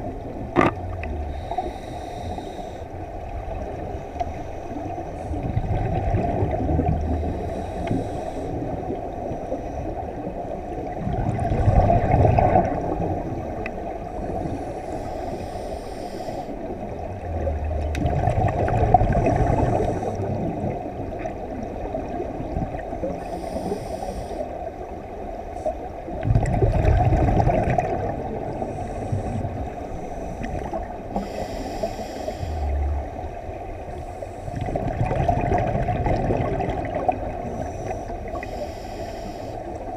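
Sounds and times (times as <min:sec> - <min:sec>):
exhaust bubbles gurgling underwater: 0:00.0 - 0:39.9
regulator hiss: 0:14.5 - 0:16.7, 0:23.2 - 0:24.5, 0:28.7 - 0:33.0, 0:37.5 - 0:39.8.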